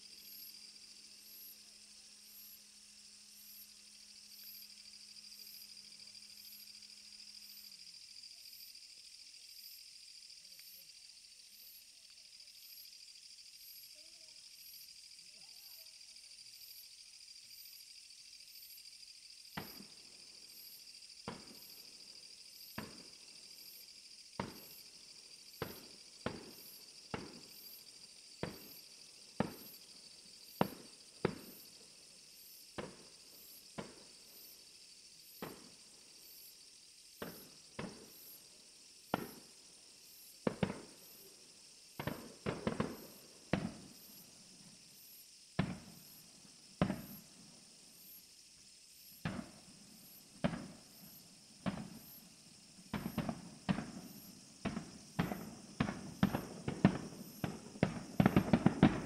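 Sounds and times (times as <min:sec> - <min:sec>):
fireworks bursting with sharp bangs: 0:19.6 - 0:20.0, 0:21.2 - 0:21.8, 0:22.6 - 0:23.1, 0:24.4 - 0:24.8, 0:25.5 - 0:27.8, 0:28.4 - 0:28.8, 0:29.4 - 0:29.8, 0:30.4 - 0:31.7, 0:32.7 - 0:33.1, 0:33.7 - 0:34.5, 0:35.3 - 0:35.8, 0:37.2 - 0:38.4, 0:39.0 - 0:39.5, 0:40.4 - 0:41.2, 0:41.9 - 0:44.2, 0:45.6 - 0:46.2, 0:46.8 - 0:47.4, 0:49.1 - 0:59.0.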